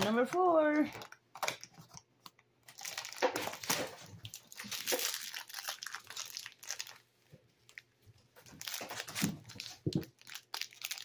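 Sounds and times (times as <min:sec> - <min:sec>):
crinkly plastic bag rustling: 0:02.6 - 0:11.0.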